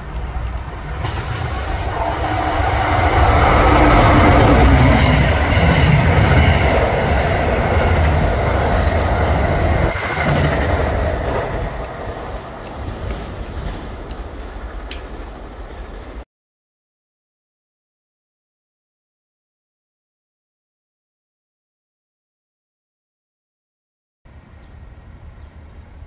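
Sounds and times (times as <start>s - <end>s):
train passing: 0.0s - 16.2s, 24.3s - 26.0s.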